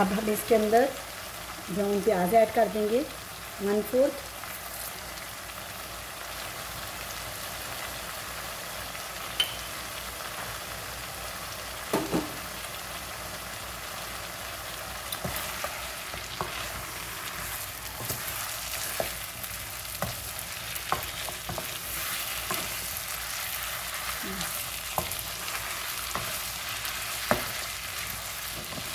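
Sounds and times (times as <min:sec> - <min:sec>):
chicken sizzling in oil: 0:00.0 - 0:28.9
spatula scraping a pan: 0:15.1 - 0:19.3, 0:19.9 - 0:28.9.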